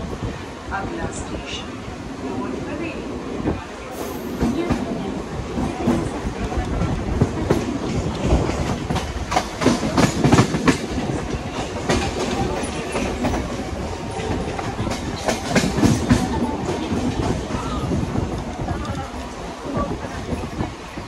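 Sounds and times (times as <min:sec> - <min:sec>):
train rumble: 0:00.0 - 0:21.0
train wheels clacking on rail joints: 0:04.0 - 0:21.0.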